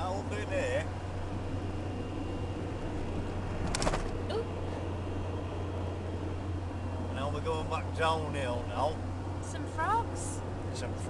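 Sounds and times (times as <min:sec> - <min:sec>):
car engine and road drone: 0:00.0 - 0:11.0
brief clatter: 0:03.6 - 0:04.2.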